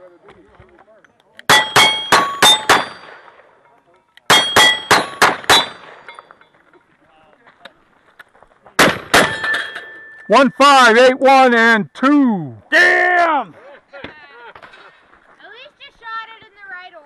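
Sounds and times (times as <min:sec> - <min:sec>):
bullet clanging on steel plate: 0:01.4 - 0:03.2, 0:04.2 - 0:06.6, 0:09.1 - 0:10.3.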